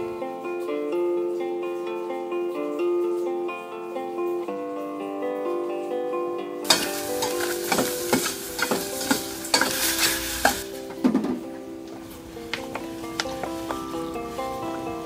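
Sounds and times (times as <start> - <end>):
acoustic guitar music: 0.0 - 15.0
onion sizzling in a pot: 6.6 - 15.0
metal spoon scraping a pot: 6.7 - 10.6.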